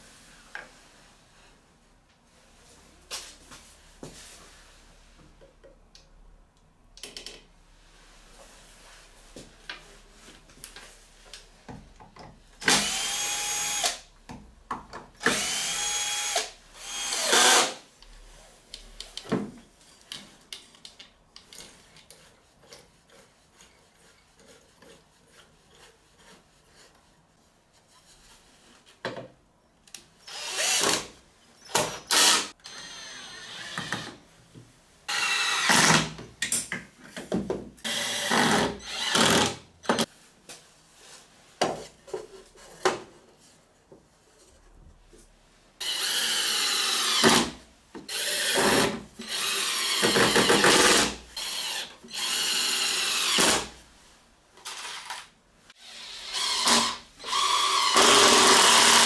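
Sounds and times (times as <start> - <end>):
cordless drill whirring into wood: 12.6 - 14.0, 15.2 - 17.8, 30.3 - 31.1, 31.7 - 34.2, 35.1 - 36.0, 37.9 - 40.0, 45.8 - 47.5, 48.1 - 53.7, 55.8 - 59.0.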